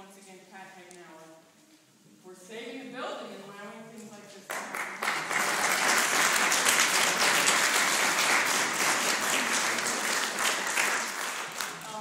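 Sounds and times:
crowd applauding: 0:04.5 - 0:12.0.

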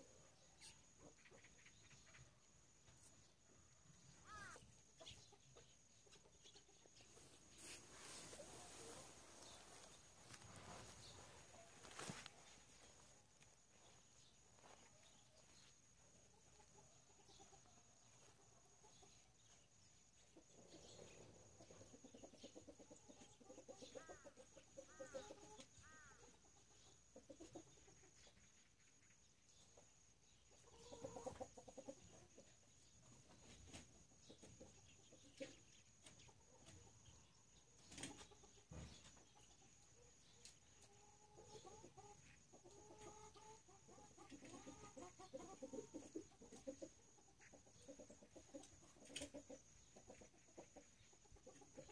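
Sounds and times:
hens clucking: 0:40.8 - 0:51.9.

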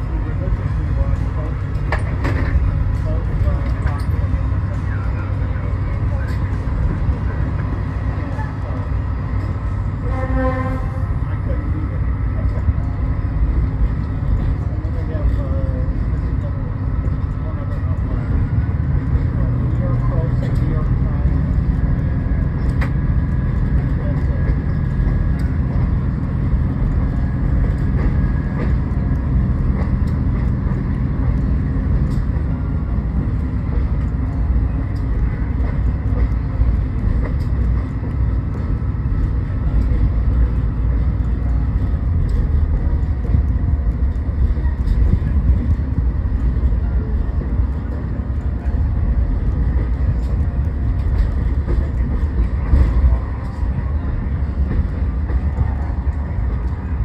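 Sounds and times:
diesel engine drone: 0:00.0 - 0:57.0
train wheels rumbling on track: 0:00.0 - 0:57.0.

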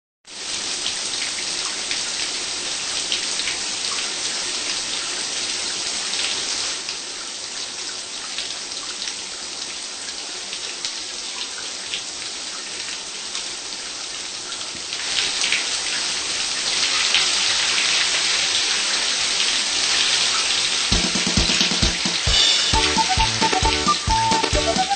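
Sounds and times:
shower water spraying: 0:15.0 - 0:24.9.

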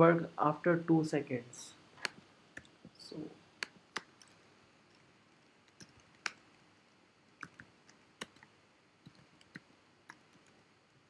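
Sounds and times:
keyboard keystrokes: 0:07.4 - 0:10.6.

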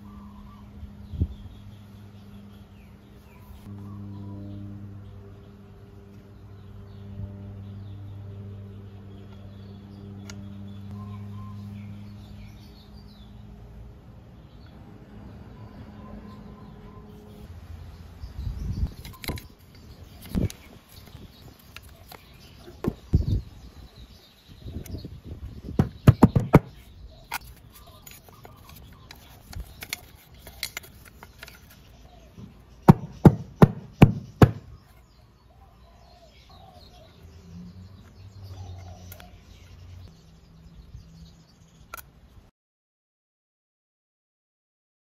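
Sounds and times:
loud taps: 0:25.8 - 0:26.7.

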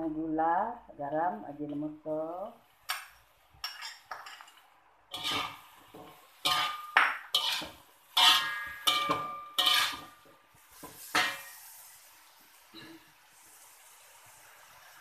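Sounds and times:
metal fork scraping a wok: 0:05.1 - 0:10.2.

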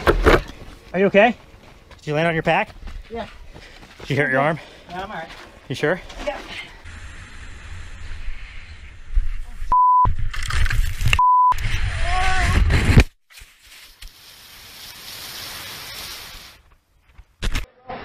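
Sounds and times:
censor bleeps: 0:09.7 - 0:10.1, 0:11.2 - 0:11.6
faint hiss: 0:13.6 - 0:16.8.

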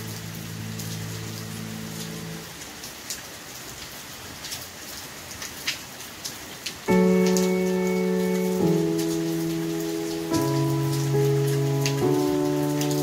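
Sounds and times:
soft held music chord: 0:00.0 - 0:02.5, 0:06.9 - 0:13.0
rain drop hits: 0:00.0 - 0:13.0
steady rain hiss: 0:00.0 - 0:13.0.

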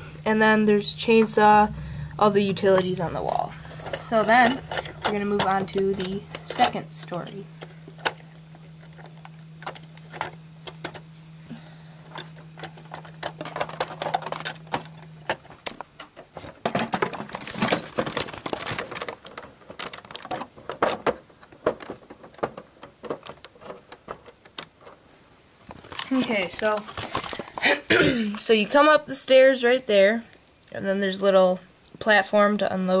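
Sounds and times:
plastic bricks clicking: 0:12.1 - 0:25.0.

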